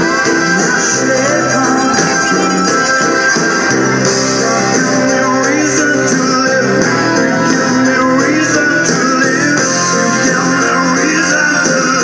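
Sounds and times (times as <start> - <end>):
loud rock music with guitar: 0.0 - 12.0.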